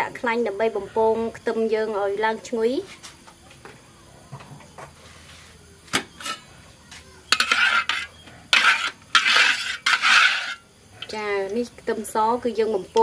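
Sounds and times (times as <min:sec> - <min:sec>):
ladle scraping through hot oil: 0:07.3 - 0:11.2.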